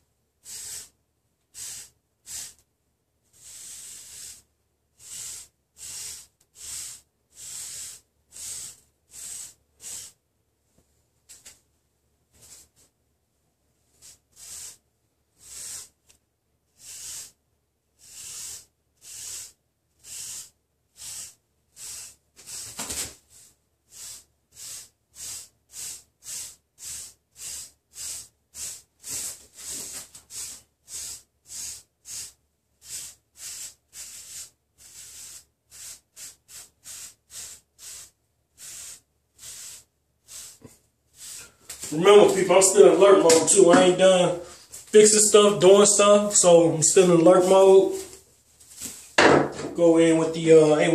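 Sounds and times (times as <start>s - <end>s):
brush swishing through hair: 18.4s - 49.8s.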